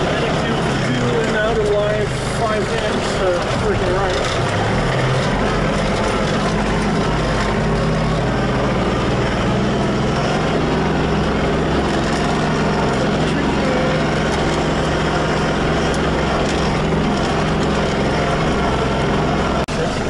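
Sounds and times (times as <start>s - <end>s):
tractor engine running: 0.0s - 20.0s.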